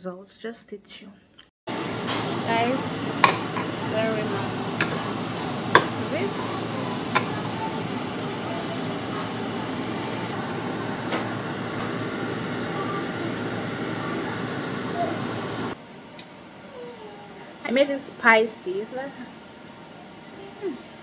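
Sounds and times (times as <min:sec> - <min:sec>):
sauce sizzling in a saucepan: 0:01.8 - 0:12.7
metal spoon stirring: 0:04.6 - 0:07.5.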